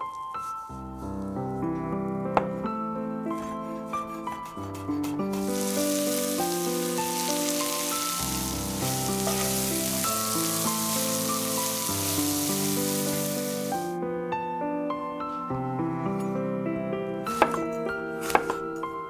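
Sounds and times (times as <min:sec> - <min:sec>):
soft piano music: 0:00.0 - 0:19.0
spatula stirring: 0:05.0 - 0:13.9
vegetables sizzling in oil: 0:05.3 - 0:13.9.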